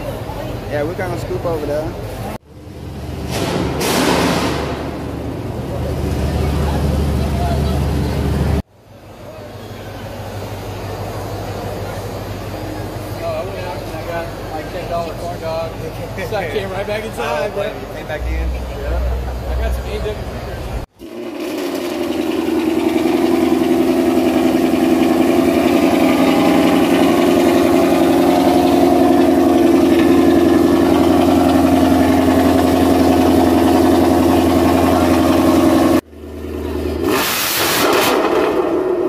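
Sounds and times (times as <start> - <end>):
car engine idling: 0.0 - 37.1
engine rev with exhaust rush: 18.2 - 39.0.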